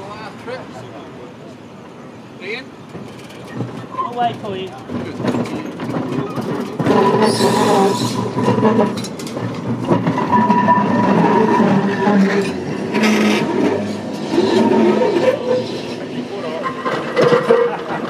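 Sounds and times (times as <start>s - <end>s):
tram wheels rumbling on rails: 0.0s - 18.0s.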